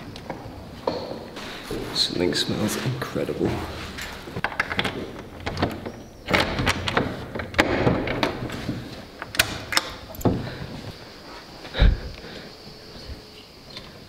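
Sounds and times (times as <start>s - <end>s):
clicks knocks and light thuds: 2.7s - 11.0s.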